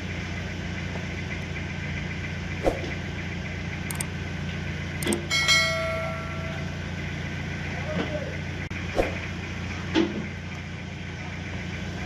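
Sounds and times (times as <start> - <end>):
engine idling: 0.0 - 12.0
sharp metallic clink: 5.0 - 6.7.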